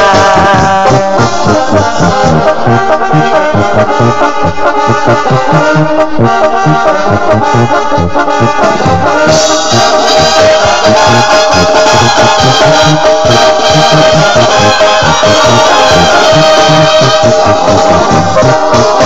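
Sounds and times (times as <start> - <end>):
brass instruments playing: 0.0 - 19.0
pulsing bass: 0.0 - 19.0.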